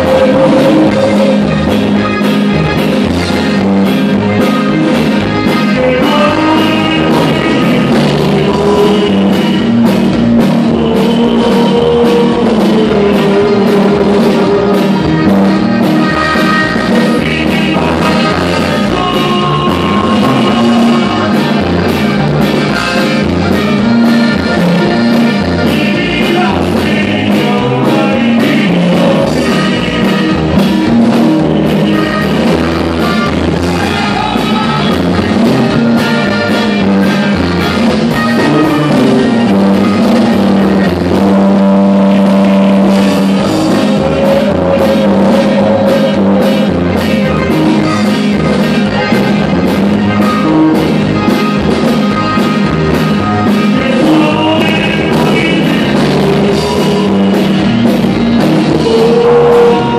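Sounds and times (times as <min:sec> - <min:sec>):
men singing: 0:00.0 - 0:01.9, 0:05.4 - 0:09.7, 0:10.4 - 0:15.2, 0:16.3 - 0:22.0, 0:24.6 - 0:32.1, 0:33.1 - 0:47.1, 0:53.4 - 0:59.9
live band playing: 0:00.0 - 0:59.9.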